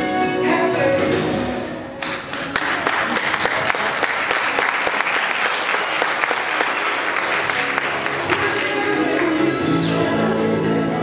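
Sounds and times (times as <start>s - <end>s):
background music: 0.0s - 3.4s, 5.2s - 11.0s
audience clapping: 2.0s - 9.6s.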